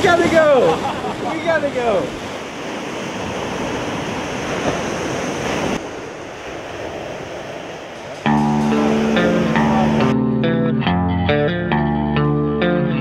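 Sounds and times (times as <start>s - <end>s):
waves breaking on rocky shore: 0.0s - 10.0s
wind: 0.0s - 13.0s.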